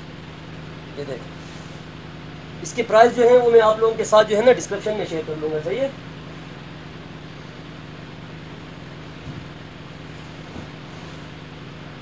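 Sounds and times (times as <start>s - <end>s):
low background hum: 0.0s - 12.0s.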